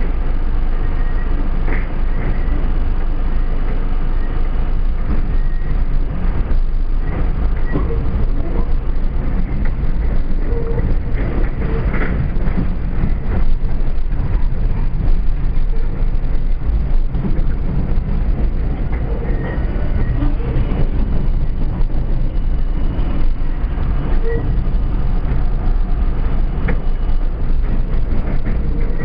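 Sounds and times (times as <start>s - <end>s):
train wheels rumbling on track: 0.0s - 29.0s
faint wheel squeals: 5.3s - 5.8s.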